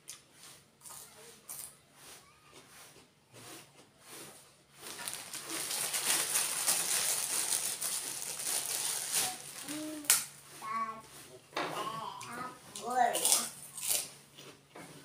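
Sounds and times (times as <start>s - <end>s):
plastic bag crinkling: 4.8s - 10.2s.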